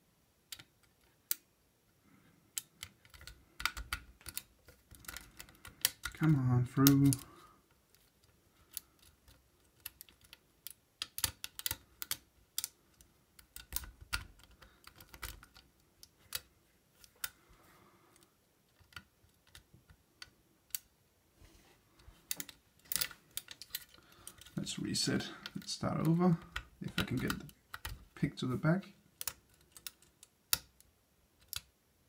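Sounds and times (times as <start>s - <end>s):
lock pick metallic clicks: 2.5s - 7.3s, 8.6s - 17.4s, 22.3s - 24.6s, 25.4s - 28.1s, 29.2s - 31.7s.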